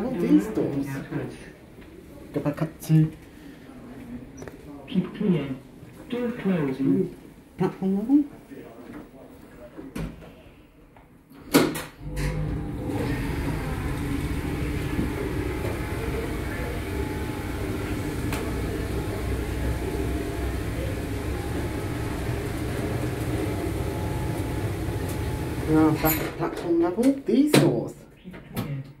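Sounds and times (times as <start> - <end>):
lift drive humming: 12.0 - 26.4
lift starting clunk: 12.0 - 26.6.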